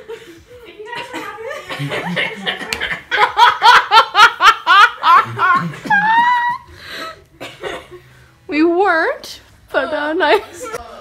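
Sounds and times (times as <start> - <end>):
young women laughing: 0.0 - 6.7.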